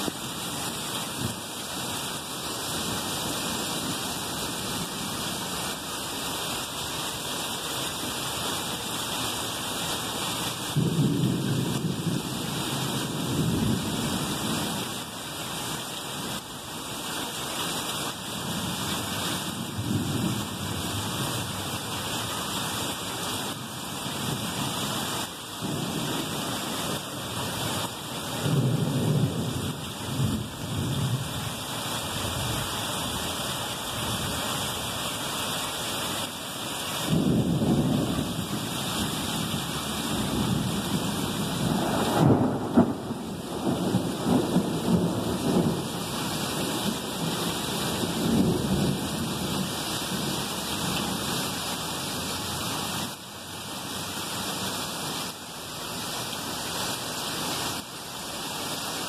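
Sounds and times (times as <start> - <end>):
heavy rain pouring: 0.0 - 59.0
thunder rumbling: 37.0 - 50.4.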